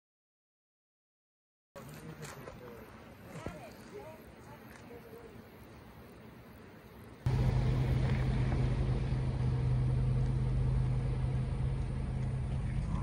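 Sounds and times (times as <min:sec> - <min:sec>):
road noise: 0:06.8 - 0:13.0
vehicle engine drone: 0:07.2 - 0:13.0.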